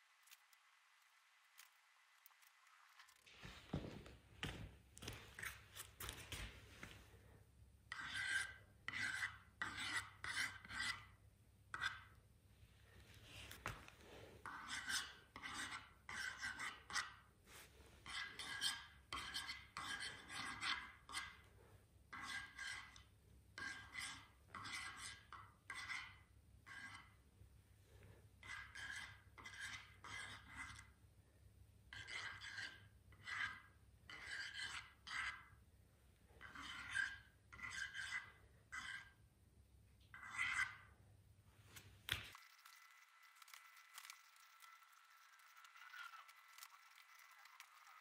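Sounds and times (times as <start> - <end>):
paint sputtering from squeeze bottle: 42.3 - 48.0.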